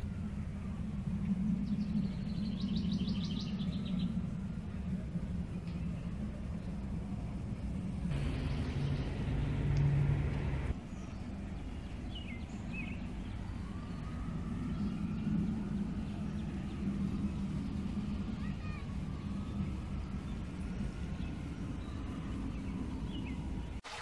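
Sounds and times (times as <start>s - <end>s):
distant traffic rumble: 0.0s - 23.8s
loud rushing noise: 8.1s - 10.8s
bird chirps: 8.1s - 11.2s.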